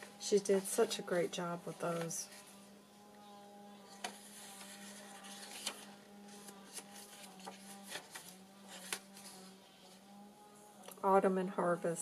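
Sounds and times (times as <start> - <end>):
paper pages rustling: 0.0 - 2.7, 3.7 - 10.1.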